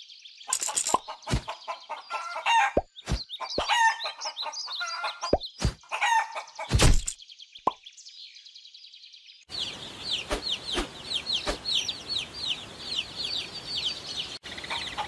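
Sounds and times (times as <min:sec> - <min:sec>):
hens clucking: 0:00.5 - 0:06.8, 0:14.5 - 0:15.0
chicks peeping: 0:00.9 - 0:06.9, 0:09.5 - 0:15.0.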